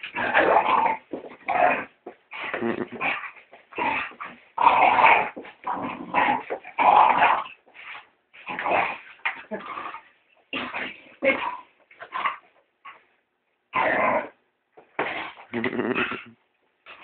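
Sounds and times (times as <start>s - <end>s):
dog growling: 0.0s - 7.5s.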